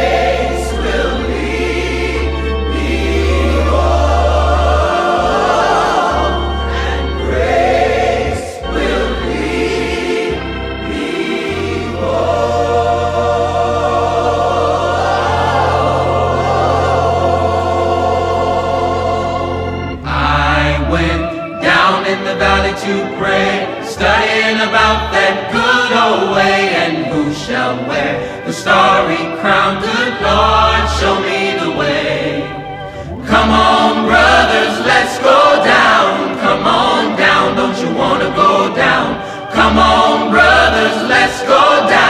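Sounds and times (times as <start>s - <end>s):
held bass notes: 0.0s - 27.4s
choir singing in harmony: 0.0s - 42.0s.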